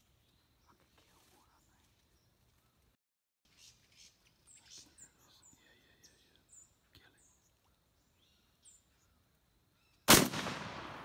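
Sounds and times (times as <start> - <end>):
shotgun shot echoing: 10.1 - 11.0.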